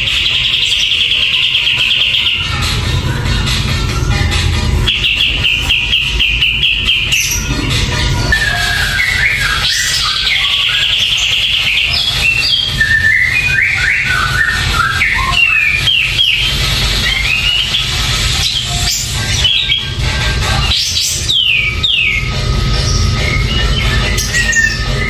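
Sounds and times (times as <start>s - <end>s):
steady low hum: 0.0s - 25.0s
bird singing whistled notes: 4.9s - 7.5s, 8.2s - 20.0s, 20.6s - 25.0s.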